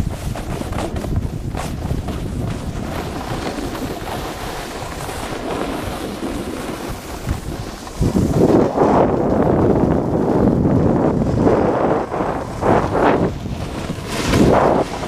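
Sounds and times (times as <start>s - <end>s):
snowboard carving on packed snow: 0.0s - 15.0s
wind buffeting microphone: 0.0s - 15.0s.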